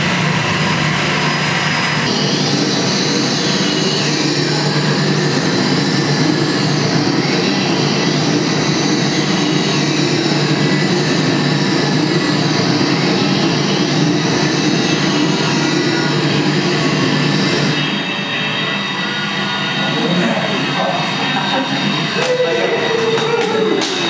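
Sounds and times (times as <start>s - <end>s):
dense electronic drone: 0.0s - 24.0s
high sliding electronic tones: 14.3s - 23.0s.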